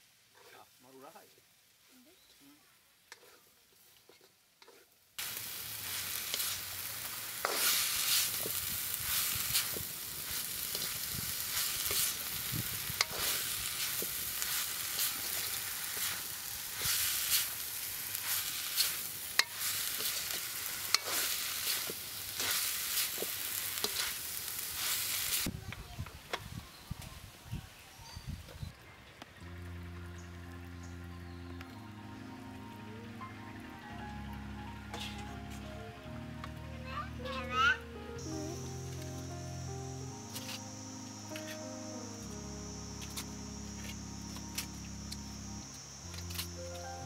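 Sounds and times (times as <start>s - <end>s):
vegetables sizzling in a wok: 0.0s - 28.7s, 36.9s - 47.0s
metal spatula scraping a pan: 3.1s - 4.9s, 7.4s - 12.2s, 12.9s - 24.2s.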